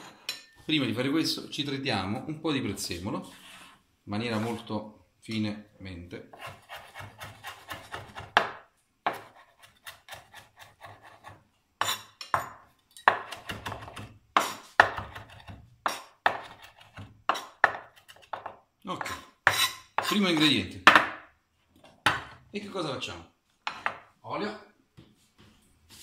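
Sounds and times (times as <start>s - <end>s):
knife chopping on wooden board: 6.3s - 21.2s.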